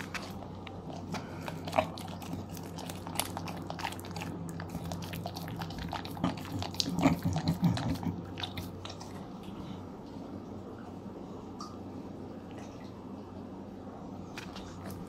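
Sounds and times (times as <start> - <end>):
dog licking and slurping: 0.0 - 9.6.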